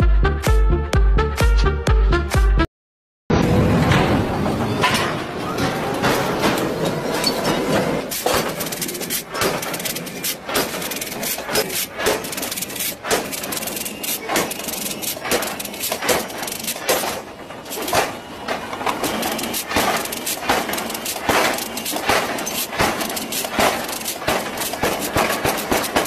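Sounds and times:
power hammer heavy blows: 7.7 - 26.0.

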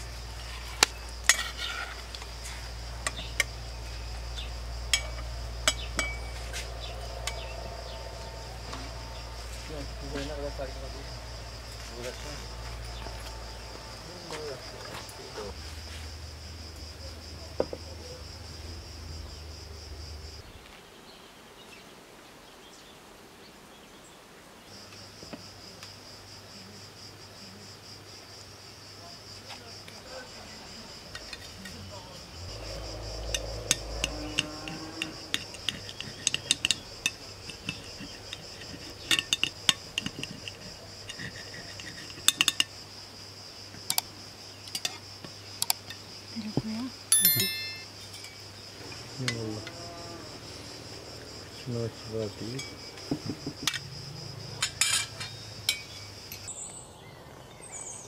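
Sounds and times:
insects trilling: 0.0 - 58.0
knife scraping glass plate: 1.2 - 2.1, 34.4 - 42.7
low hum: 1.9 - 15.4.

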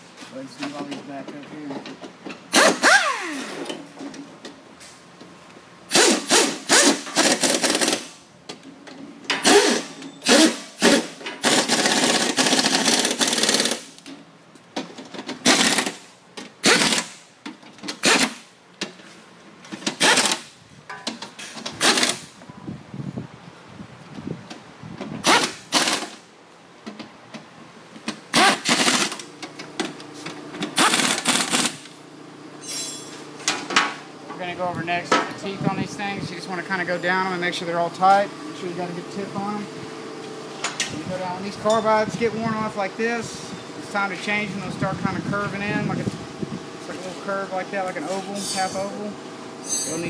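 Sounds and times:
air impact wrench bursts: 2.5 - 3.8, 5.9 - 8.2, 9.4 - 14.0, 15.4 - 17.2, 17.9 - 18.5, 19.9 - 20.6, 21.8 - 22.4, 25.2 - 26.3, 28.3 - 29.3, 30.7 - 32.0.

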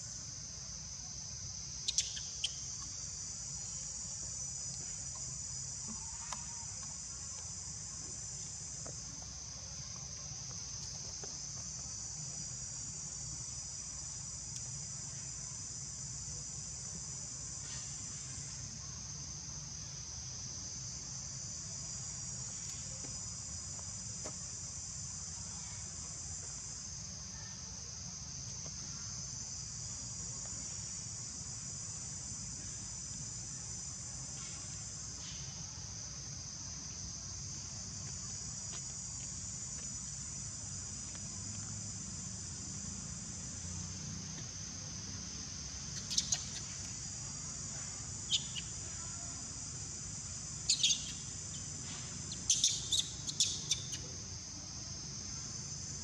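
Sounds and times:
insects shrilling: 1.8 - 3.2, 45.5 - 54.4.

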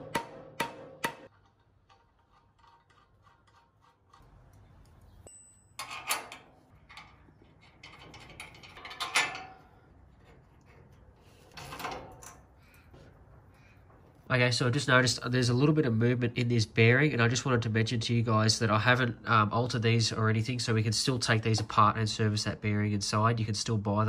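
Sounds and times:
metal parts knocking and scraping: 1.0 - 12.5
metal clinking: 5.2 - 9.8.

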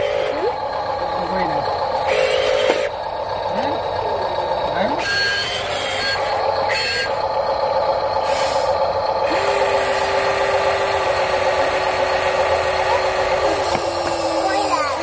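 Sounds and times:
electric motors whining: 0.0 - 15.0
reversing beep: 4.6 - 7.2.

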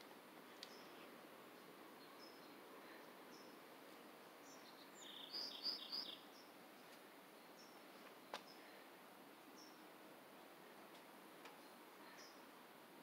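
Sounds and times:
small bird chirping: 4.4 - 6.6.

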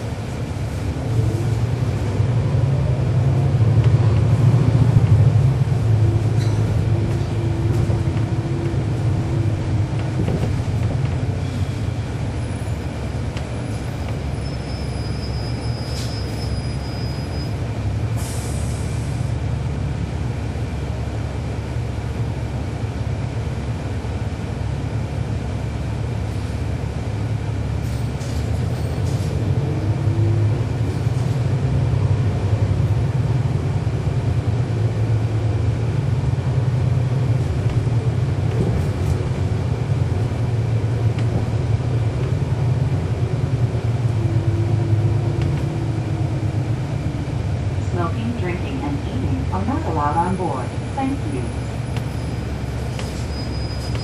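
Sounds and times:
bus diesel engine droning: 0.0 - 54.0
brief high squeal: 14.4 - 17.6, 53.1 - 54.0.

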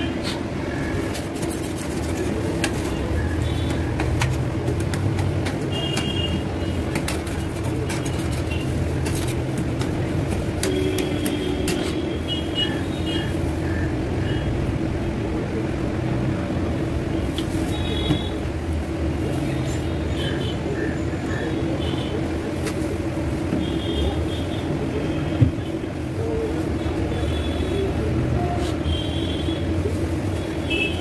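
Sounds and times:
street traffic: 0.0 - 31.0.

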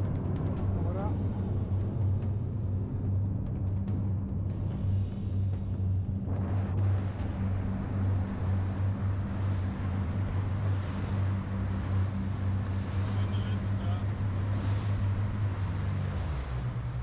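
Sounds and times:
low engine drone: 0.0 - 17.0
wash of open water: 0.0 - 17.0
wind on microphone: 6.2 - 17.0.

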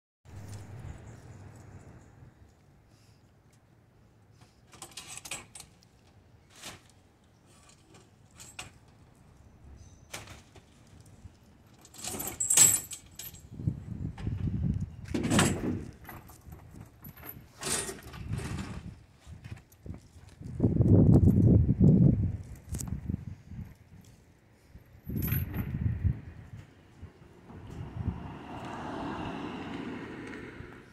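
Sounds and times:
yard gear clinking and rattling: 7.4 - 14.4, 15.0 - 21.5, 24.0 - 25.8
clattering and scraping: 15.1 - 20.2.

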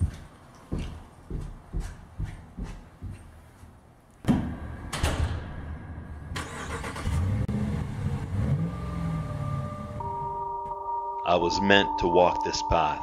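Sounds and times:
truck engine starting and revving: 5.7 - 10.4.

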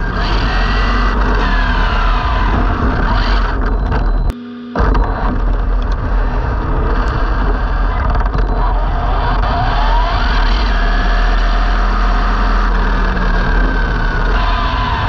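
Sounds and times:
electric motor whine: 0.0 - 15.0
rushing wind: 4.8 - 15.0.

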